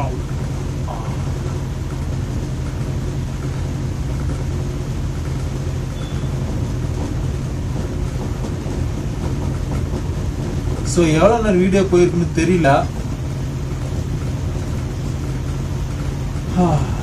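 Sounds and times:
air cooler fan humming: 0.0 - 17.0.

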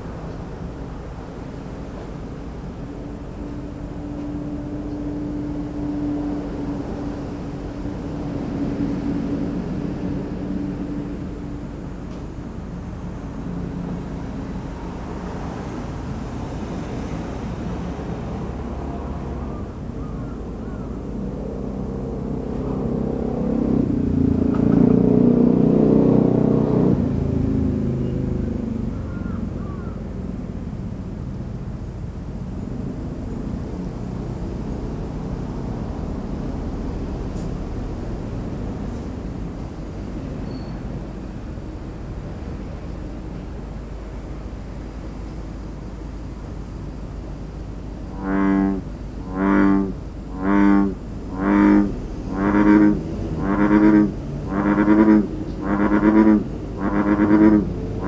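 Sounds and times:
distant traffic rumble: 0.0 - 58.0
vehicle passing: 13.0 - 29.9, 30.5 - 45.0, 47.2 - 58.0.

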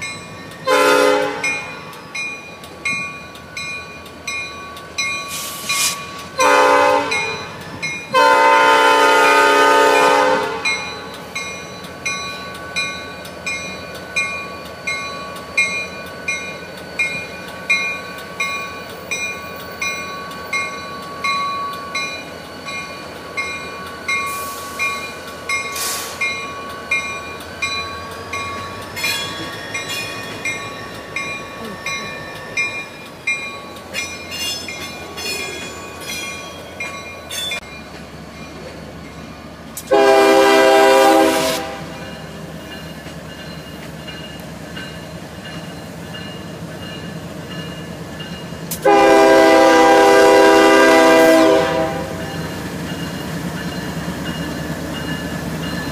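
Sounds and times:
locomotive air horn blasts: 0.7 - 1.7, 6.4 - 7.4, 8.1 - 10.7, 39.9 - 42.0, 48.8 - 52.2.

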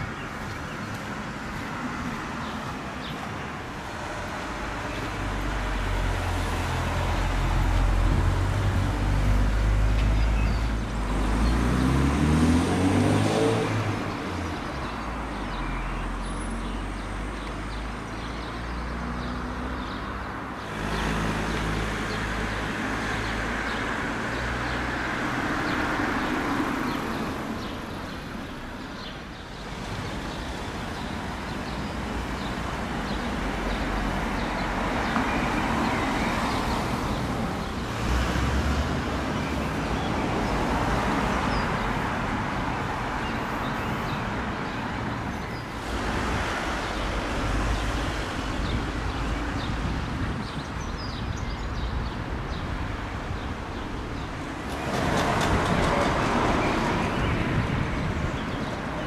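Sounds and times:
tyre noise of passing vehicle: 0.0 - 59.0
vehicle engine speeding up: 11.3 - 13.9.

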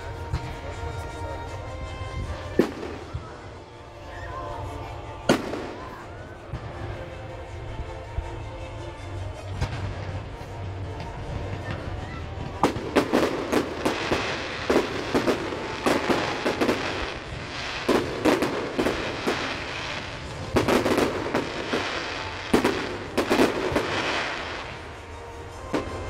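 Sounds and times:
fireworks crackling: 0.0 - 8.4, 9.2 - 26.0.

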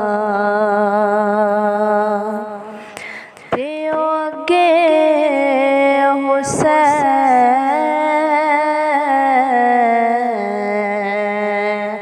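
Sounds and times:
person singing long wavering note: 3.6 - 12.0.

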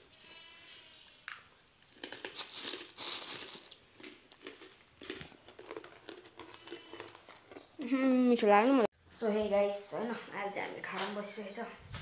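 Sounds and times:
plastic bags crinkling: 1.9 - 7.7.

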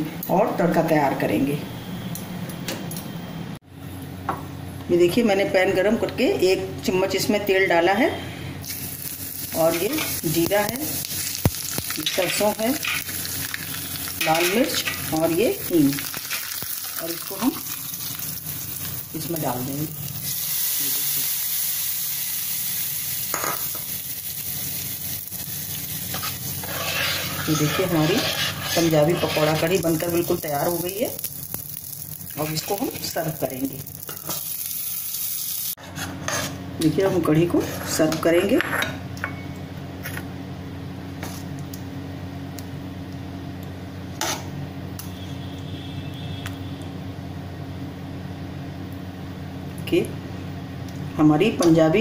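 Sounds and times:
hot oil sizzling: 8.6 - 35.8.

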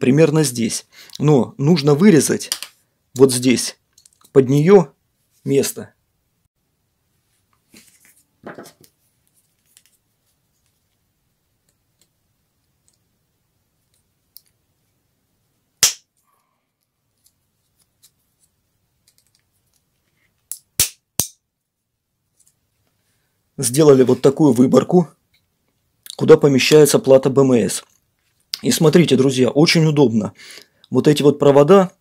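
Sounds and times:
handling rustle: 7.2 - 11.0.

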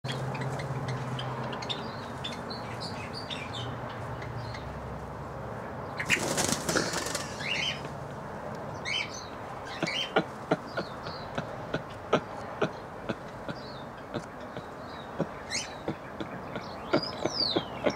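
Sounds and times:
small birds chirping: 0.0 - 4.8, 5.8 - 7.9, 8.6 - 17.9
bird wings flapping: 6.0 - 7.6.

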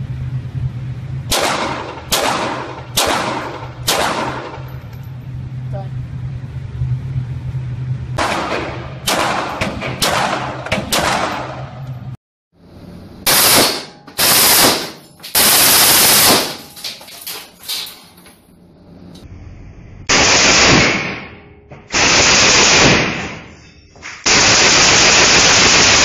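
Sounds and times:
submachine gun bursts: 13.3 - 16.7, 24.3 - 26.0.

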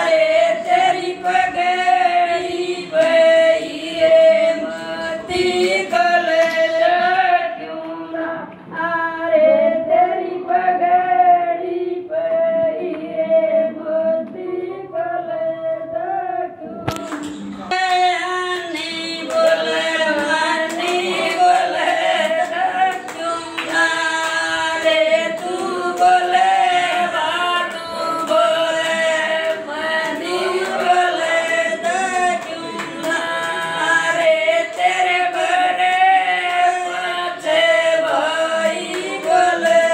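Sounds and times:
hand clapping: 0.0 - 8.6, 16.9 - 39.9
women singing in unison: 0.0 - 39.9.

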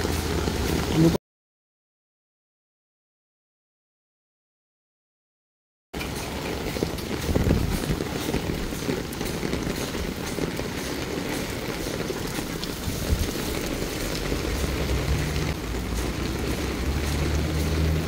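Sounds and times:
heavy rain on pavement: 0.0 - 1.2, 6.0 - 18.0
wind buffeting microphone: 6.2 - 18.0.

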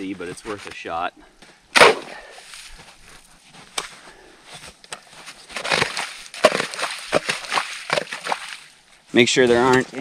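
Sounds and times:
shovel scraping through snow and ice: 4.6 - 8.6.

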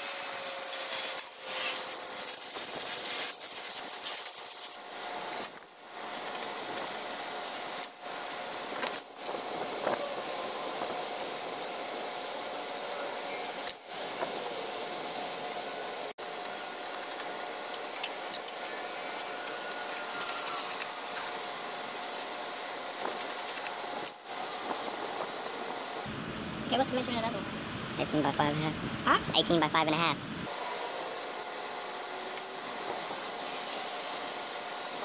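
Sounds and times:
motor whirring: 18.0 - 21.8.

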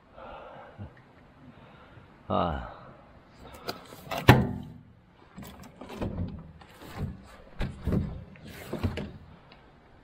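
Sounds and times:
metal microwave case thumping: 4.1 - 4.9
metal case knocks and clunks: 4.1 - 9.2.

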